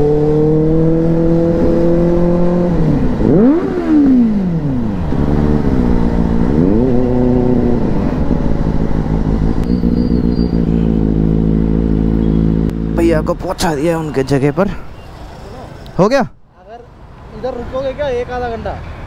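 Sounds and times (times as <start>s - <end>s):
motorcycle engine revving: 0.0s - 13.9s.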